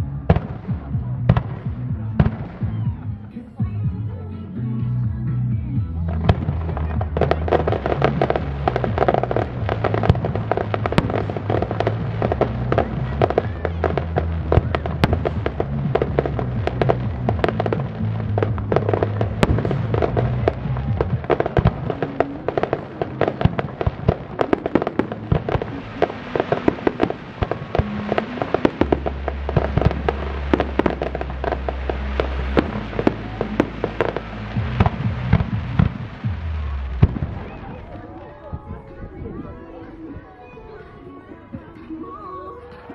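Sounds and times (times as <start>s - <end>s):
fireworks bursts and crackling: 0.0s - 3.3s, 6.0s - 42.1s
music with bass notes: 0.0s - 39.6s.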